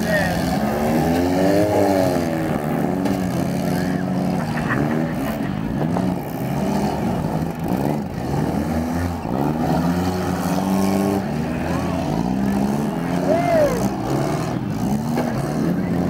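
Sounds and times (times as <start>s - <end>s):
car engines revving: 0.0s - 16.0s.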